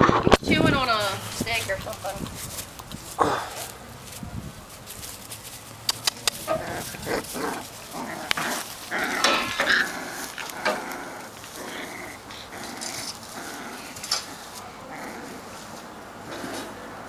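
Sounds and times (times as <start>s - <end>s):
puppies wrestling and vocalizing: 0.0s - 17.0s
sharp clicks: 5.8s - 6.5s.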